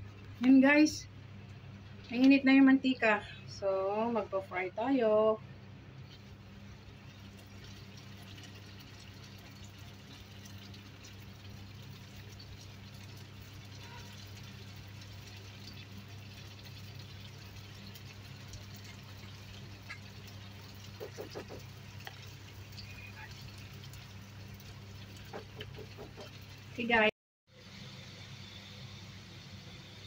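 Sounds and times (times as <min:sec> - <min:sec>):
low steady hum: 0:00.0 - 0:30.0
dough sizzling in hot oil: 0:06.0 - 0:30.0.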